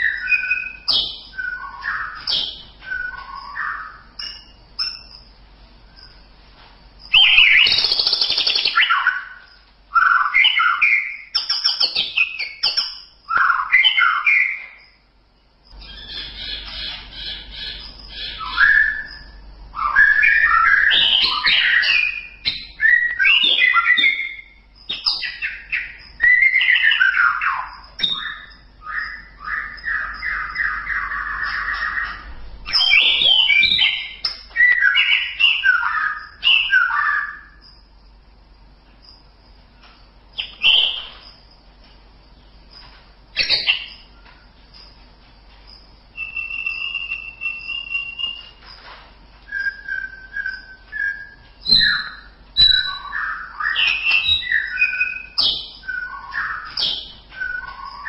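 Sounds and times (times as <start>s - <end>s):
bird singing whistled phrases: 0.0s - 5.1s, 7.1s - 14.9s, 17.2s - 37.6s, 40.4s - 41.2s, 46.1s - 48.6s, 49.5s - 58.0s
rapid bird trill: 0.0s - 6.3s, 7.0s - 15.1s, 15.7s - 38.3s, 39.1s - 41.7s, 42.3s - 45.0s, 45.7s - 58.0s.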